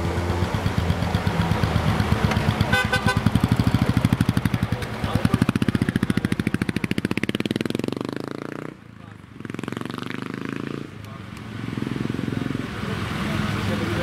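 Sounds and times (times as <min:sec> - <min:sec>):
motorcycle engine pulling away: 0:00.0 - 0:08.8, 0:09.4 - 0:10.9.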